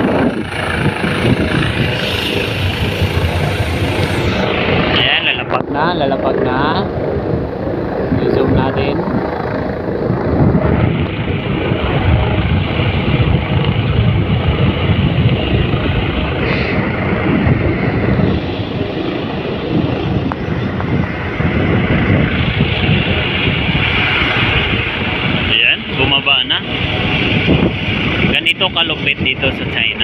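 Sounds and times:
helicopter rotor and turbine: 0.0s - 30.0s
wind buffeting microphone: 0.0s - 30.0s.

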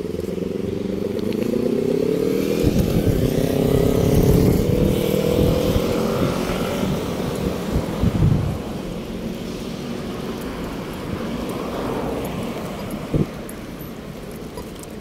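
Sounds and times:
vehicle engine accelerating: 0.0s - 13.8s.

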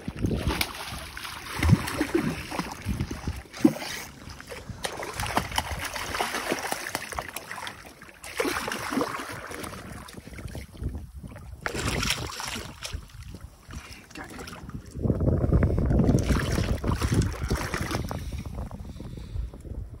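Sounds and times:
fish thrashing and splashing: 0.1s - 10.6s, 11.5s - 13.3s.

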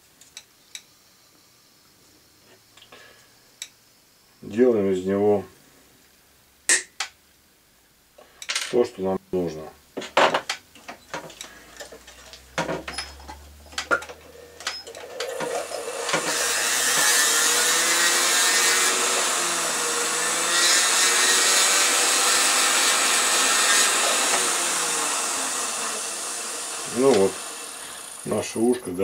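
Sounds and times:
rotary handpiece whirring: 11.3s - 28.3s.

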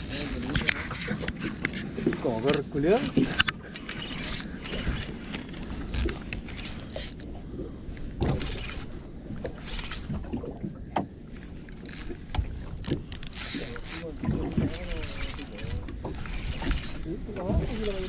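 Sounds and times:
fishing reel handle turning: 0.0s - 1.8s, 3.1s - 5.2s, 5.8s - 7.6s, 8.5s - 8.9s, 9.8s - 10.4s, 11.2s - 12.2s, 12.8s - 14.1s, 14.8s - 17.1s.

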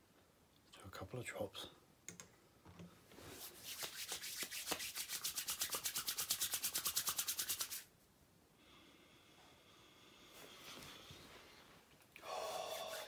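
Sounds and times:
palms rubbing together: 3.3s - 7.9s, 12.6s - 13.0s.

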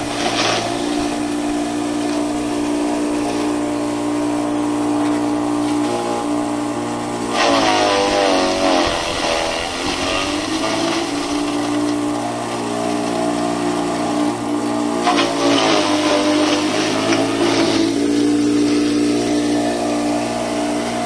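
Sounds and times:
electric chopper grinder humming: 0.0s - 21.0s.

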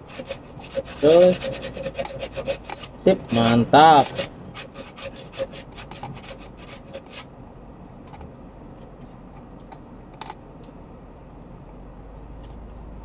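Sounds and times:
metal scraping and clicking: 1.0s - 7.3s, 8.1s - 10.8s.

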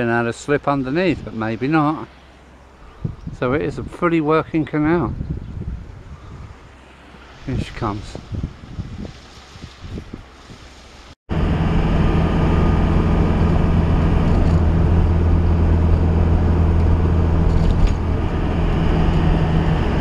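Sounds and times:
road noise: 0.0s - 20.0s
engine drone: 11.3s - 20.0s.

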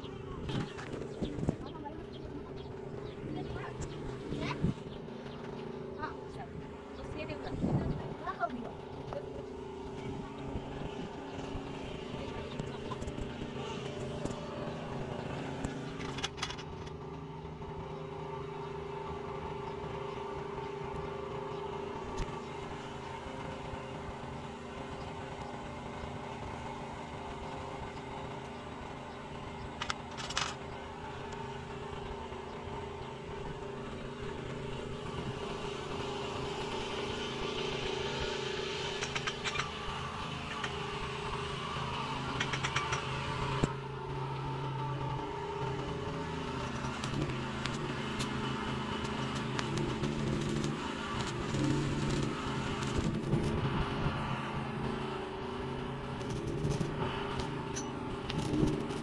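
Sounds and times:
motor droning: 0.0s - 59.0s
short clicks: 29.8s - 30.6s.

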